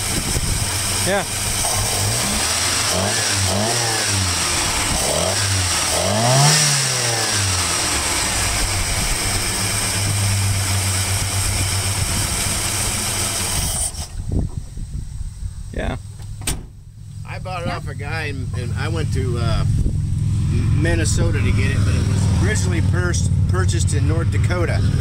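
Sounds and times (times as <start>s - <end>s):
truck engine revving and idling: 0.0s - 14.7s, 16.8s - 25.0s.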